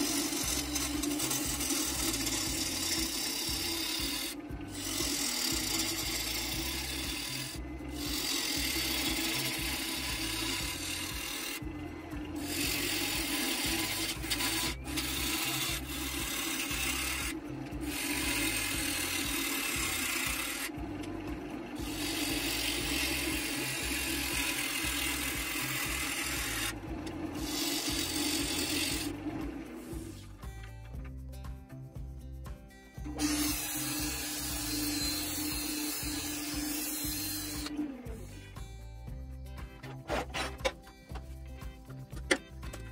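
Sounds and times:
gouge cutting wood rasp: 0.0s - 20.7s, 21.8s - 29.2s, 33.2s - 37.7s, 39.8s - 40.8s
wood lathe hum: 0.0s - 31.1s, 33.0s - 39.2s.

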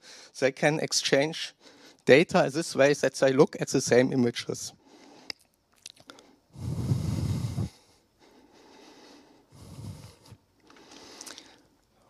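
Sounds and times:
man breathing heavily: 1.6s - 2.0s, 4.8s - 5.4s, 6.1s - 11.8s
faint mouth clicks: 5.3s - 6.3s, 10.6s - 11.9s.

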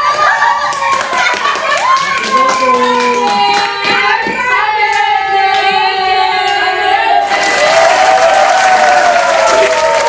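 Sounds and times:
women and girls singing: 0.0s - 7.8s
hand claps: 0.6s - 5.8s.

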